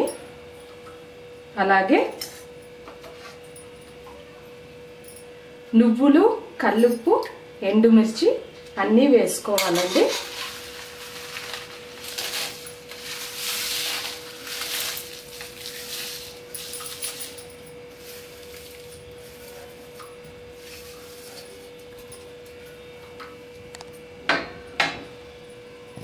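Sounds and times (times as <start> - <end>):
spices rattling into a steel pan: 9.6 - 20.0.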